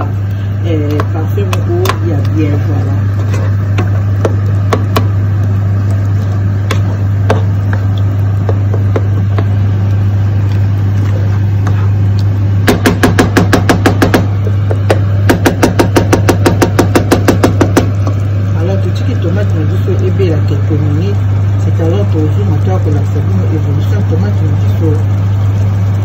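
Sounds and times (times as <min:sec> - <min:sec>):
wooden spoon stirring sauce in pan: 0:00.0 - 0:12.3
steady low hum: 0:00.0 - 0:26.0.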